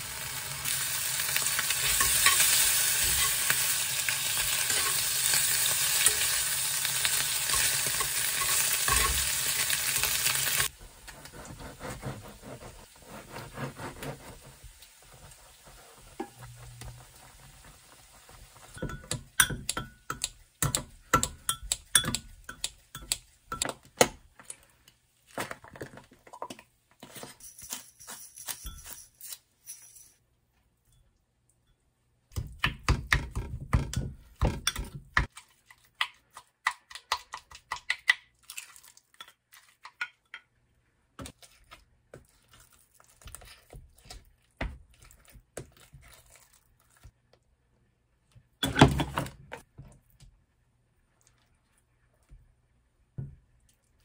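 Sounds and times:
spoon tapping in glass: 0:18.8 - 0:23.7.

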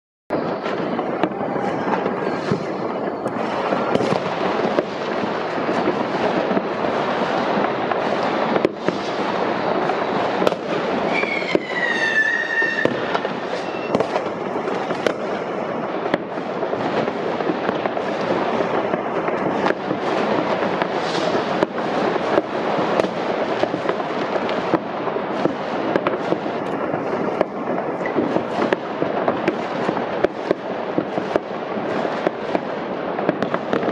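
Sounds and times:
fireworks bangs and crackles: 0:00.3 - 0:33.9
firework whistle falling in pitch: 0:11.1 - 0:14.2.

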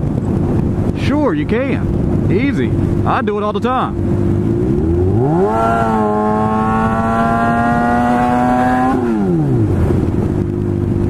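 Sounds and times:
wind rush over microphone: 0:00.0 - 0:11.0
motorcycle engine revving: 0:02.7 - 0:11.0.

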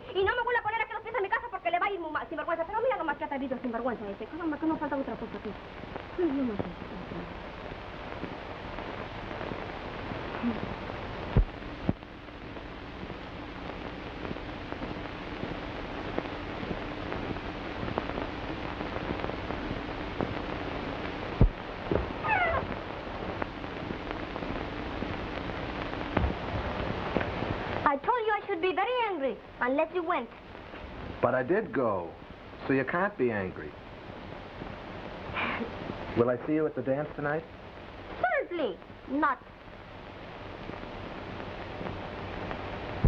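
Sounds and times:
film soundtrack hiss: 0:00.0 - 0:43.0
high falling call: 0:22.0 - 0:22.8.

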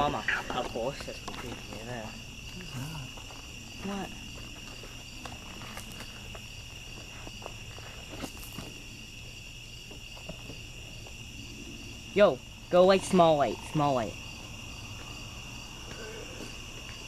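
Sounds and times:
crickets trilling: 0:00.0 - 0:17.0.

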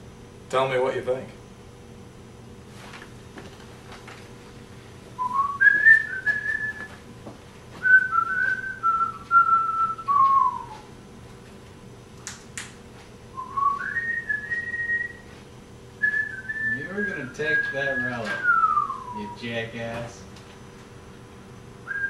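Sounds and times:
person whistling a tune: 0:05.2 - 0:07.0, 0:07.8 - 0:10.9, 0:13.4 - 0:15.2, 0:16.0 - 0:19.4.

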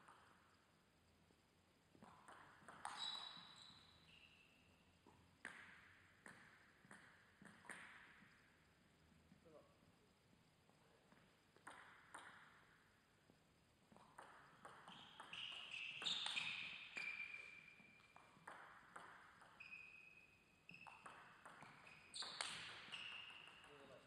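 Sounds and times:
short high squeaks: 0:02.9 - 0:04.7, 0:14.9 - 0:18.0.

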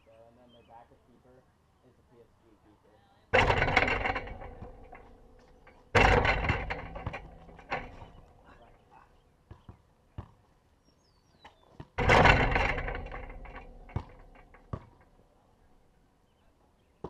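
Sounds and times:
basketball hitting hoop: 0:03.4 - 0:08.3, 0:11.8 - 0:15.2.

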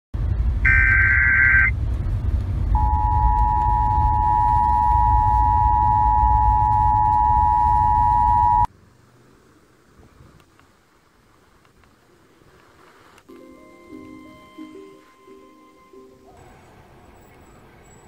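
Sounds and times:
low rumbling noise: 0:00.2 - 0:10.4
digital header tones: 0:00.7 - 0:01.7, 0:02.8 - 0:08.7, 0:13.5 - 0:16.3
two-tone attention signal: 0:00.7 - 0:01.7, 0:02.8 - 0:08.7, 0:13.4 - 0:16.3.

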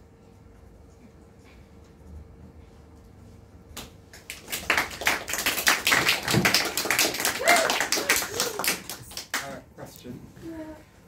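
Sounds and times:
audience applauding: 0:04.1 - 0:09.6.

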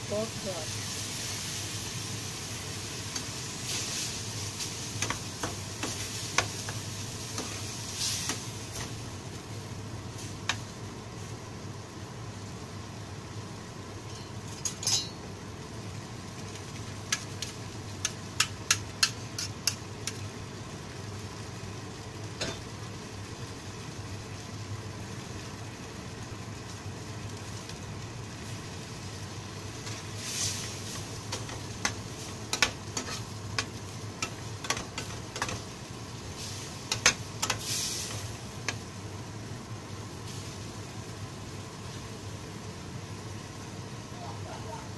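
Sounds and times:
steady low hum: 0:00.0 - 0:44.9
spatula scraping frying pan: 0:18.7 - 0:19.8, 0:29.8 - 0:35.6.

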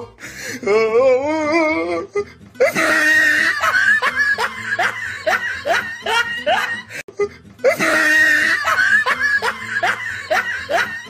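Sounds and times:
exaggerated comic laughter: 0:02.6 - 0:11.0.

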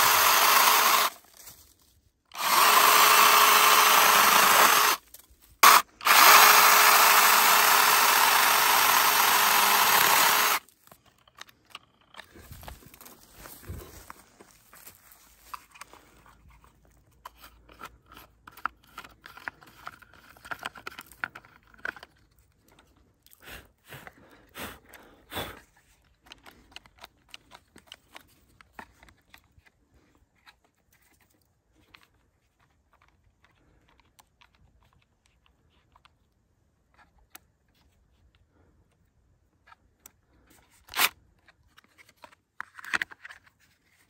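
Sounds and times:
plastic clicks and rattles: 0:16.9 - 0:23.0, 0:26.0 - 0:29.7.

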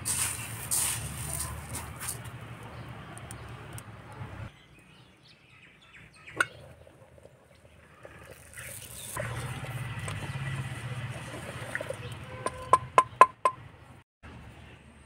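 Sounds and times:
birds chirping: 0:02.5 - 0:14.0.

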